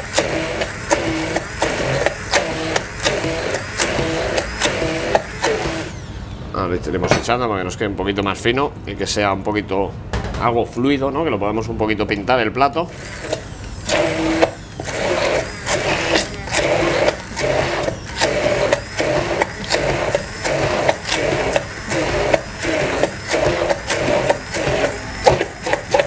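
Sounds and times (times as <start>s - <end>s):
immersion blender whirring: 0.0s - 6.4s, 12.9s - 26.0s.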